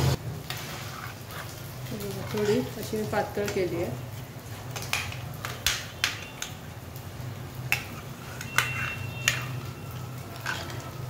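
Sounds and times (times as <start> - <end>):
spoon scraping pot: 0.8 - 2.8, 7.7 - 9.7, 10.4 - 11.0
metal spoon clinking in pot: 7.7 - 9.6.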